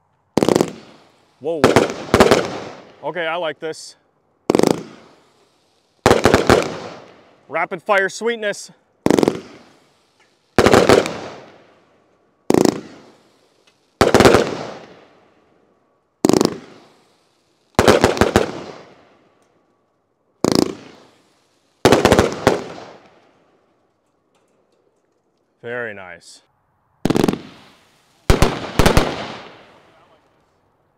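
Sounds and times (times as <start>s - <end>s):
firework cake volleys: 0.0s - 15.5s, 16.2s - 19.4s, 20.3s - 23.8s, 27.1s - 30.9s.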